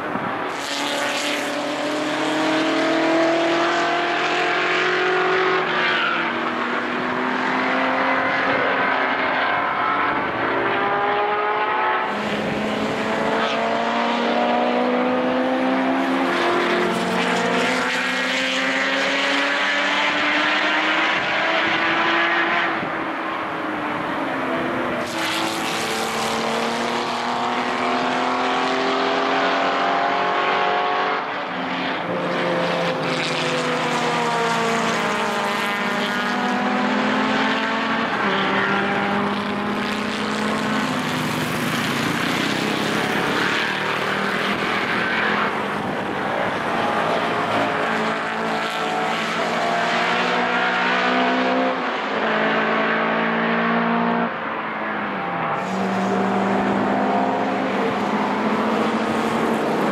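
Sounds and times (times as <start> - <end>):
racing car engines: 0.0 - 59.9.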